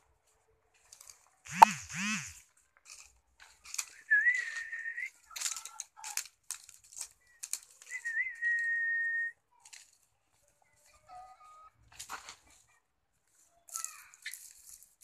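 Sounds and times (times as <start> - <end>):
rustling crunches: 0.7 - 8.9, 13.3 - 15.0
person whistling long notes: 4.1 - 5.1, 7.9 - 9.3.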